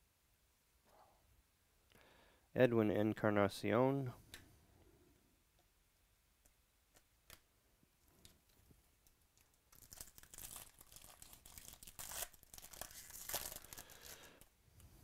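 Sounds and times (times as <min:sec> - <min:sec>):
foil wrapper tearing and crinkling: 0:09.7 - 0:14.4.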